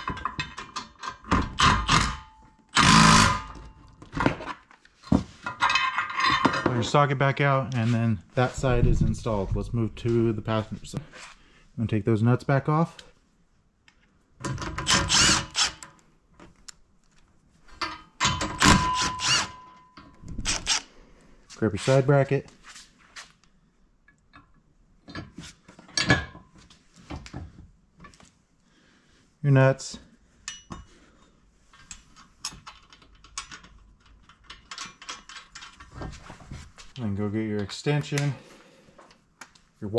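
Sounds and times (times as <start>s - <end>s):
cordless drill whining: 14.9s - 15.8s, 20.5s - 20.9s
small metal clicks and rattles: 31.7s - 36.1s.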